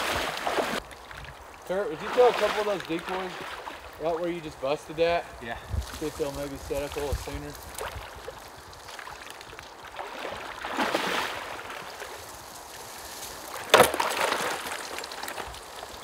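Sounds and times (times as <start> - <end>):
waders sloshing through water: 0.0 - 4.2, 7.6 - 16.0
decoy splashing among ice: 7.7 - 12.5, 13.1 - 16.0.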